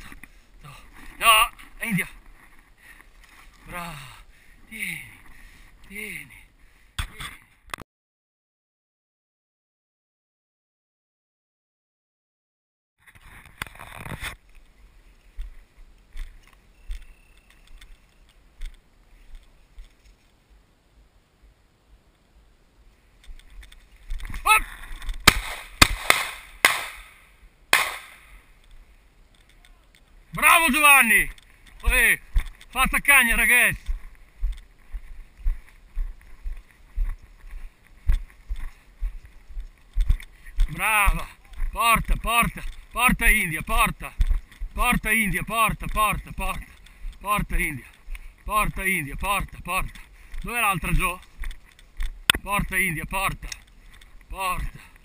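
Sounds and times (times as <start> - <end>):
footsteps with low thumps: 31.2 - 54.8.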